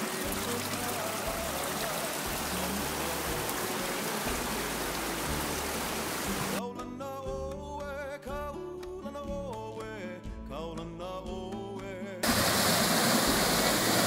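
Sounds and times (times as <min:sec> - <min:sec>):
stream trickling over rocks: 0:00.0 - 0:06.6, 0:12.2 - 0:14.0
background music: 0:00.0 - 0:14.0.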